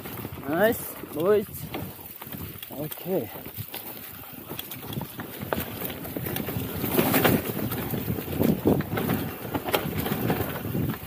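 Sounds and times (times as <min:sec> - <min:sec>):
bike rattling over bumps: 0:00.0 - 0:11.0
bike tyres rolling over dirt: 0:00.0 - 0:11.0
wind on microphone: 0:03.4 - 0:11.0.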